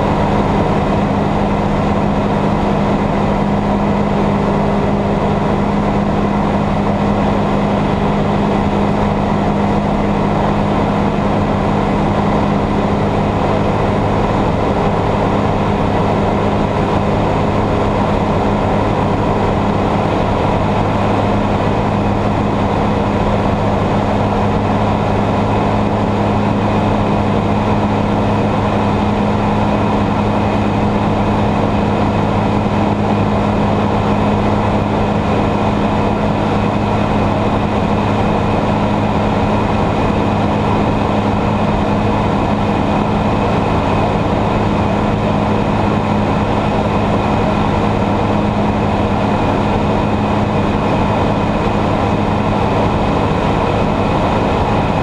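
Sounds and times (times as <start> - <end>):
aircraft engine and propeller droning: 0.0 - 55.0.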